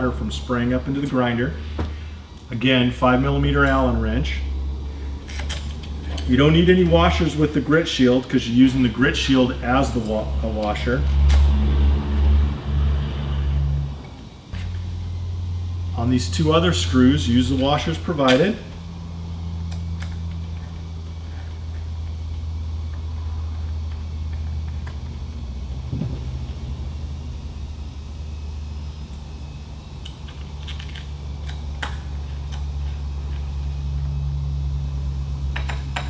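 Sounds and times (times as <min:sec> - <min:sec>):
steady low hum: 0:00.0 - 0:36.0
screws and washers clinking: 0:30.1 - 0:33.5.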